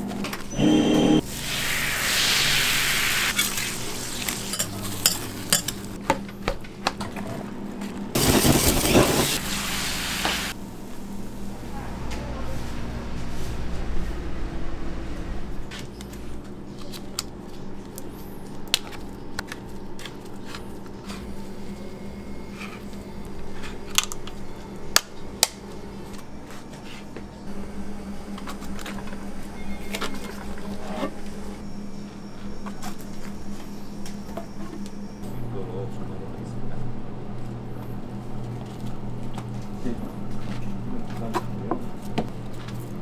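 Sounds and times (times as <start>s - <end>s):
steady low hum: 10.5s - 43.0s.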